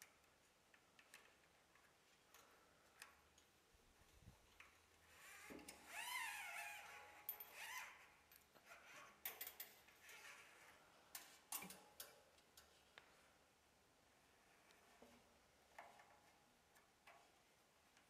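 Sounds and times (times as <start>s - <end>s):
wire cable scraping and squeaking: 5.0s - 11.7s.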